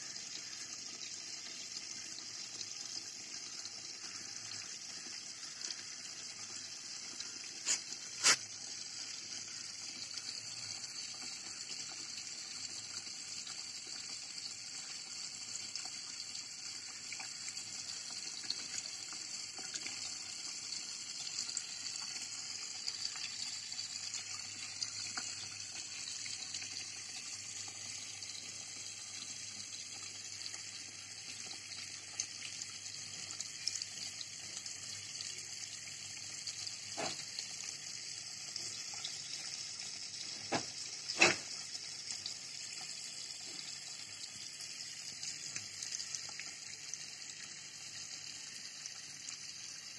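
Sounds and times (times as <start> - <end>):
high-pitched hiss: 7.6 - 8.5.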